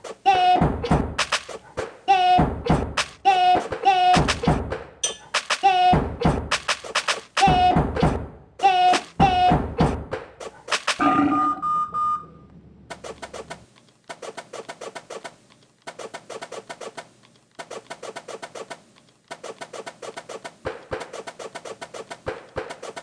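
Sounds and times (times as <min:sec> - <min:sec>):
rapid rolls of quick clicks: 0:01.2 - 0:01.9, 0:05.3 - 0:05.7, 0:06.5 - 0:07.5, 0:10.4 - 0:11.0, 0:12.9 - 0:23.0.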